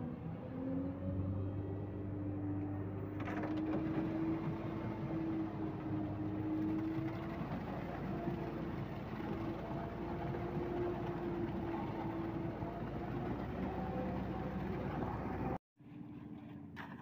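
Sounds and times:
concrete mixer truck running: 2.8s - 15.6s.

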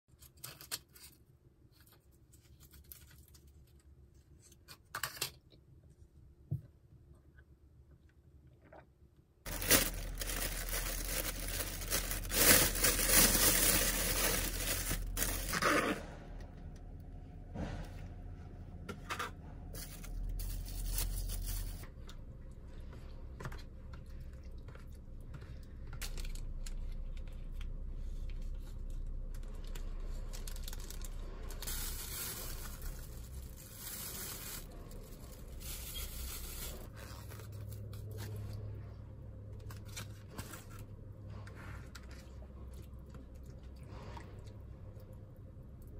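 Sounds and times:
food packaging tearing and crinkling: 9.5s - 16.0s, 19.8s - 21.8s, 28.5s - 38.5s
plastic containers handled: 9.5s - 16.1s.

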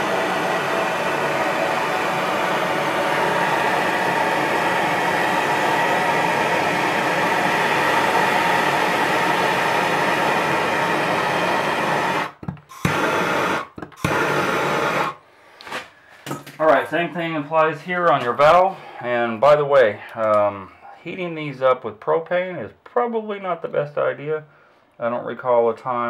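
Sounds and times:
gas torch flame hissing: 0.0s - 15.2s.

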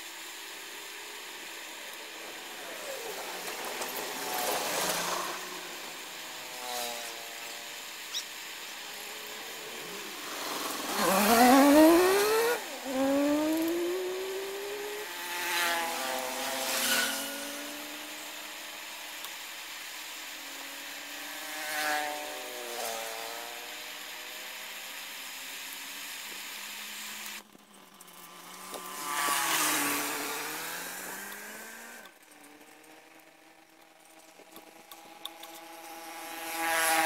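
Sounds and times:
torch flame hissing: 0.8s - 15.1s
motorbike engines passing: 0.8s - 18.6s.

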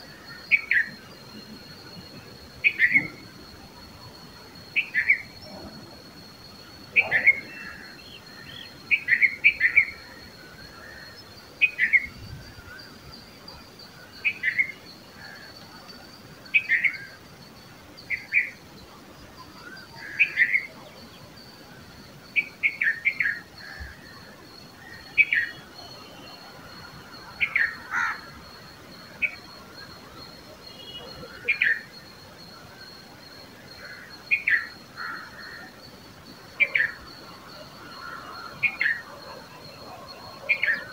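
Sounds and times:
thin steady high tone: 0.0s - 40.9s
bird chirping calls: 0.3s - 5.8s, 6.8s - 13.0s.

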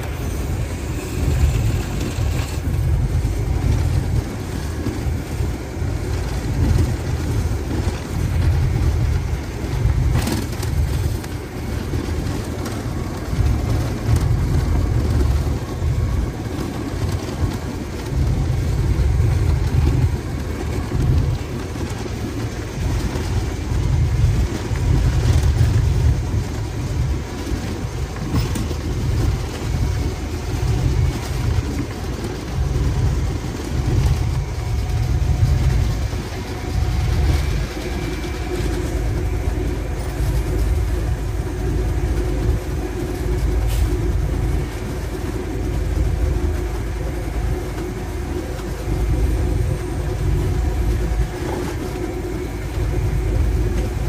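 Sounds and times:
diesel locomotive rumbling: 0.0s - 54.0s
wind buffeting microphone: 0.0s - 54.0s.

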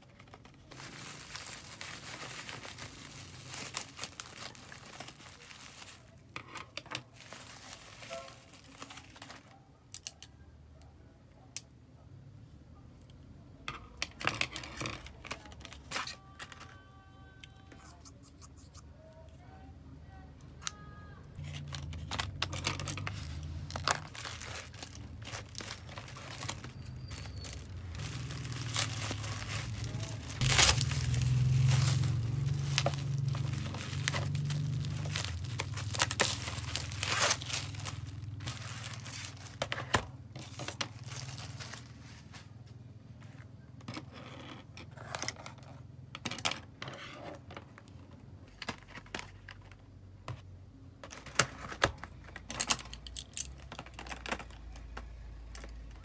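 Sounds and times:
plastic packaging crinkling: 0.0s - 6.4s, 7.0s - 10.2s, 21.4s - 42.4s, 51.1s - 56.0s.

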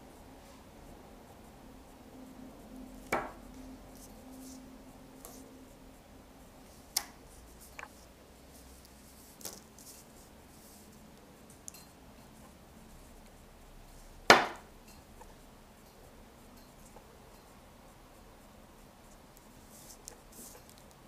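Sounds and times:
objects knocking on a table: 3.2s - 3.4s, 14.3s - 14.6s.

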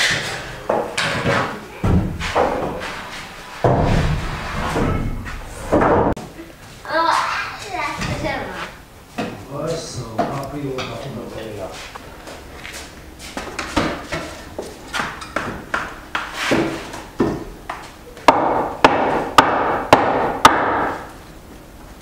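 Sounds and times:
hammer strikes: 18.3s - 21.1s.

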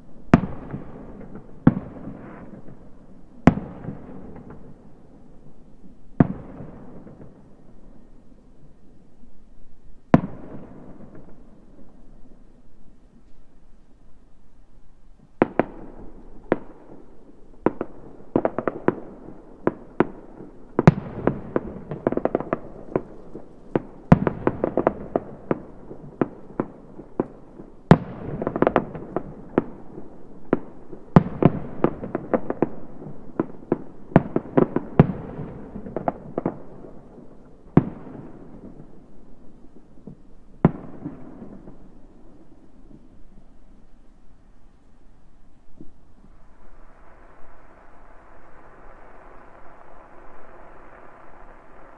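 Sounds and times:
fireworks bangs and pops: 15.4s - 39.0s, 40.0s - 42.0s, 45.7s - 51.9s.

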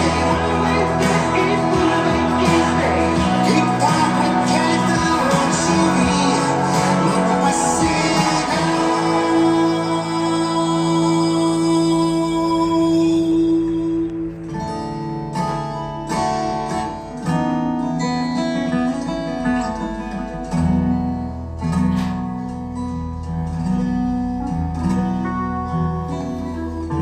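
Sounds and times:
bass part: 0.0s - 12.4s
acoustic guitar music: 0.0s - 27.0s.

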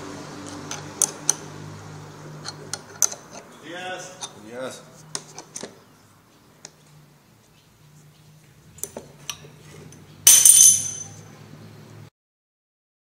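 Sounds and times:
loud metallic clatter: 10.3s - 11.2s
metal parts clinking: 10.3s - 11.2s.

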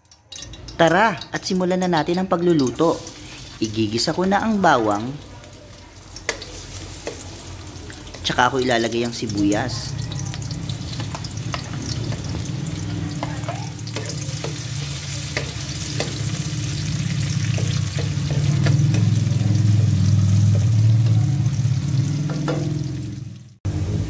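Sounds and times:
garlic and onion sizzling in oil: 0.0s - 24.0s
spatula scraping a wok: 2.4s - 4.1s, 6.0s - 8.7s, 9.9s - 22.8s.

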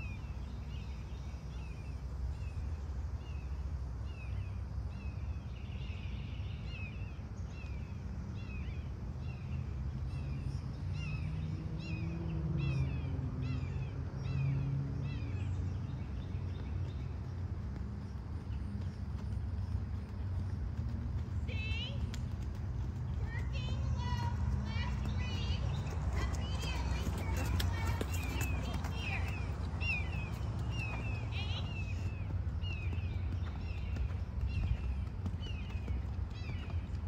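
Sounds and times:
low outdoor rumble: 0.0s - 37.0s
bird chirping: 21.2s - 37.0s.

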